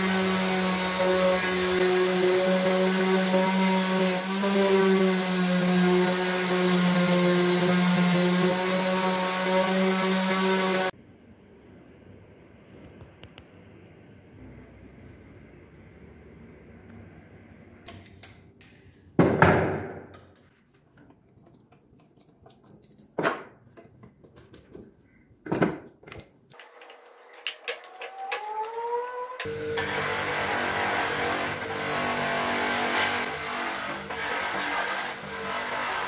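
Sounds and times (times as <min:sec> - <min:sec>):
buffing machine motor whining: 0:00.0 - 0:10.9, 0:28.1 - 0:36.0.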